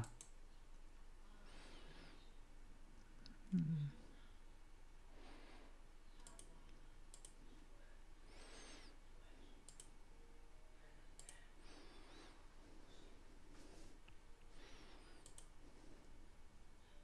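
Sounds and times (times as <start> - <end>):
computer mouse clicks: 0.0 - 0.4, 6.1 - 7.4, 9.6 - 10.0, 11.2 - 11.4, 15.1 - 15.5
low background hiss: 0.0 - 17.0.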